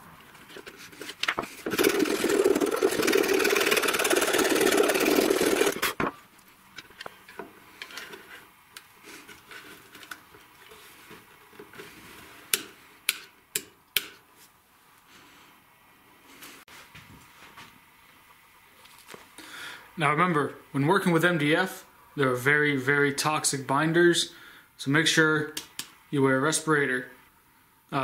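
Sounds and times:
power tool motor running: 1.6s - 6.0s.

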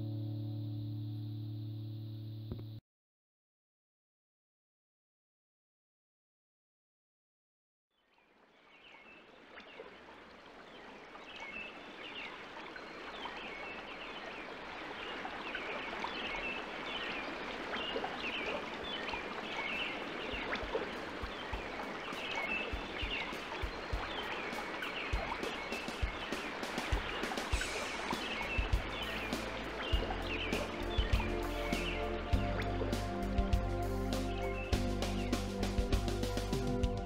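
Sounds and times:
running water rushing: 8.3s - 37.0s
soft low thumps and clicks: 20.2s - 36.2s.

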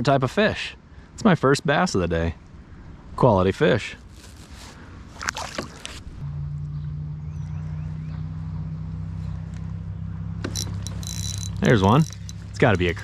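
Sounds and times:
low motor hum: 6.0s - 13.0s.

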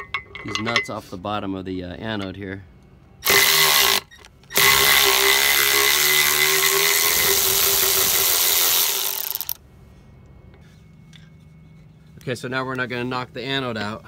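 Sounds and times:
electric ratchet spinning: 3.2s - 9.6s.

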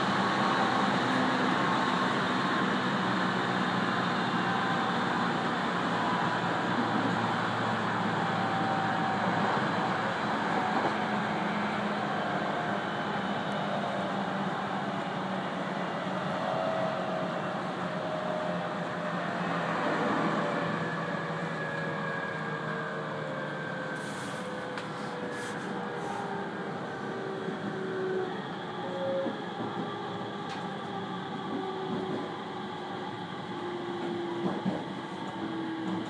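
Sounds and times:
train wheels rumbling: 23.2s - 36.0s
train motor whine: 23.8s - 36.0s.

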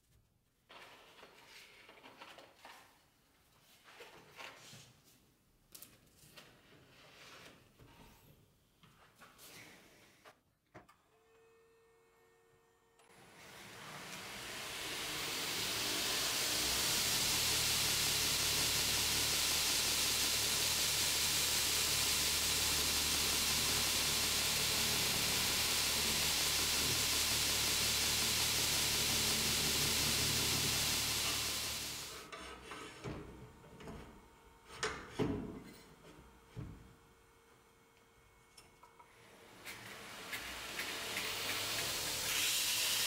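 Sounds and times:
belt grinder motor humming: 13.1s - 32.1s
abrasive belt hissing: 15.0s - 32.1s.

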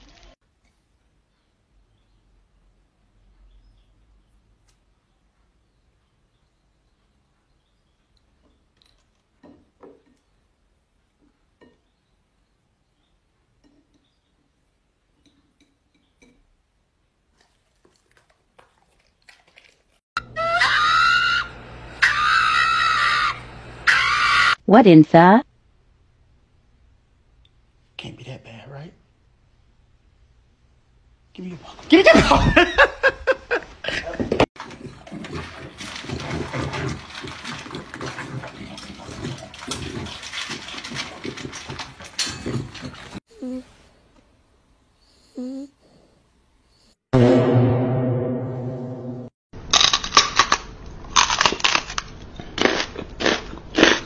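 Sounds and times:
dog howling: 20.2s - 24.6s
puppy crunching kibble: 34.6s - 43.2s.

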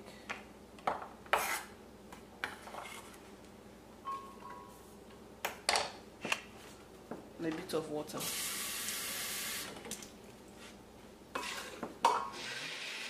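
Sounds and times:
knife scraping ceramic plate: 1.3s - 1.7s, 11.4s - 12.7s.

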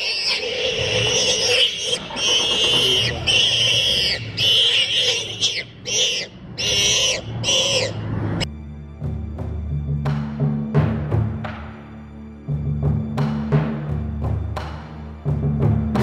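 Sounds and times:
warthog squealing in distress: 0.0s - 8.1s.

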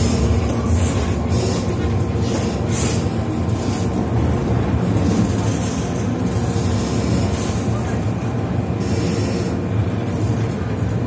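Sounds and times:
train wheels rumbling on track: 0.0s - 11.0s.

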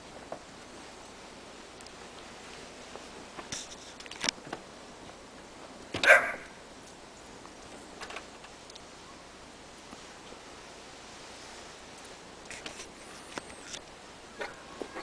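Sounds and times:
dog barking: 6.0s - 6.6s
faint clicks: 6.8s - 8.9s.

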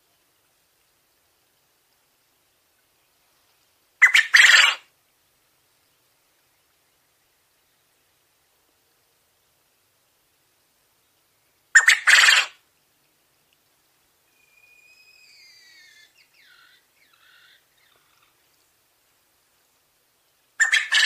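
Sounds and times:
quail calls: 4.0s - 4.8s, 11.8s - 12.6s, 20.6s - 21.0s
faint falling whistled notes: 14.3s - 16.1s.

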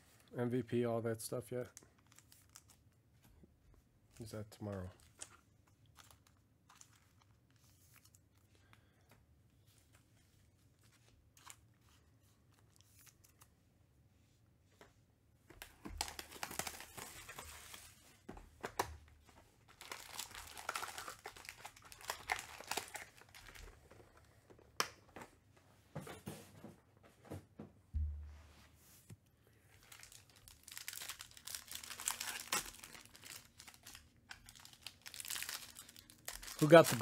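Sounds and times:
foil packs crinkling: 15.9s - 18.0s, 19.7s - 24.0s, 29.8s - 37.0s.

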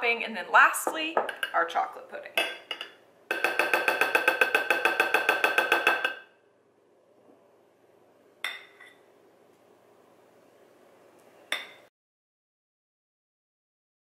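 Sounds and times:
spatula tapping glass bowl: 2.4s - 6.3s.

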